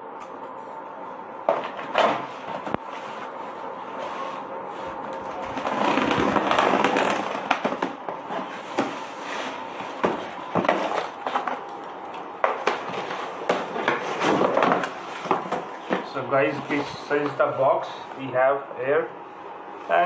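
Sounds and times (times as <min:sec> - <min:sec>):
cardboard scraping and rustling: 0:01.6 - 0:11.7, 0:12.6 - 0:16.9.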